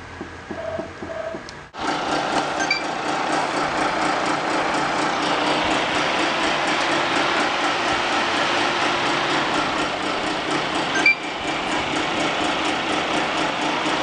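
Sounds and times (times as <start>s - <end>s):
cooling fan whirring: 0.0s - 14.0s
short high beep: 2.6s - 2.9s, 11.0s - 11.2s.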